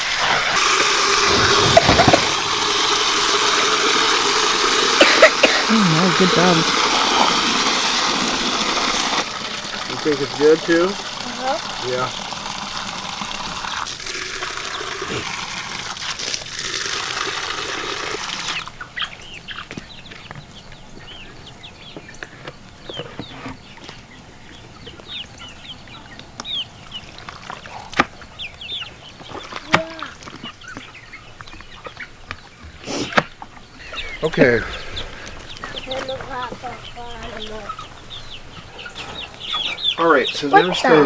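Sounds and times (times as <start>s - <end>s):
water running from hose: 0.0s - 18.8s, 34.3s - 37.8s
chicks cheeping: 18.5s - 41.0s.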